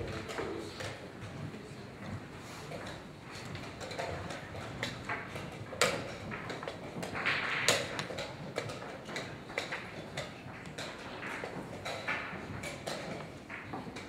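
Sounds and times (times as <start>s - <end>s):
chess pieces knocking on board: 3.6s - 14.0s.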